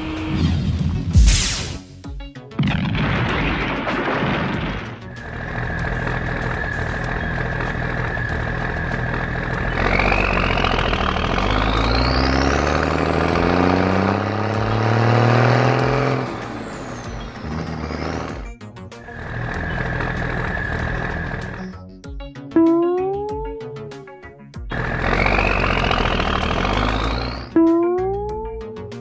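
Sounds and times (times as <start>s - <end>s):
rising engine whine: 0.0s - 0.8s, 5.1s - 21.8s, 22.6s - 29.0s
heavy truck engine revving: 5.1s - 21.8s, 24.7s - 29.0s.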